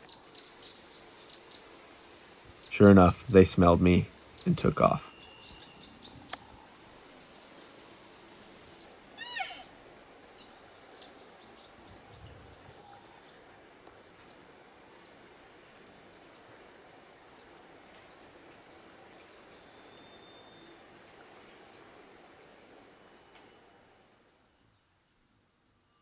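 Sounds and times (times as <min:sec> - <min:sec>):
faint outdoor ambience: 0:00.0 - 0:26.0
elk chirp: 0:04.0 - 0:13.2
high bird chirps: 0:05.0 - 0:06.4.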